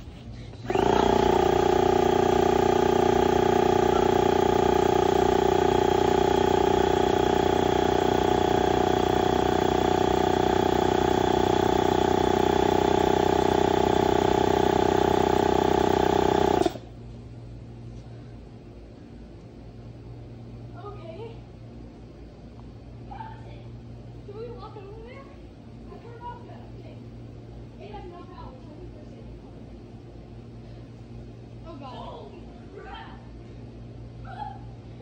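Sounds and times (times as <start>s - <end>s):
air compressor humming: 0.0s - 18.9s.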